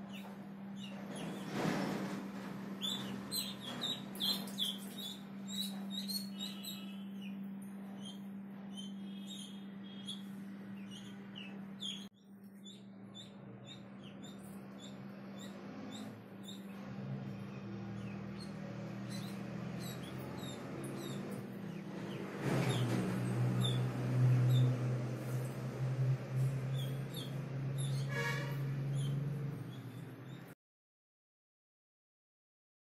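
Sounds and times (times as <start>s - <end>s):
ducklings peeping: 2.8s - 30.4s.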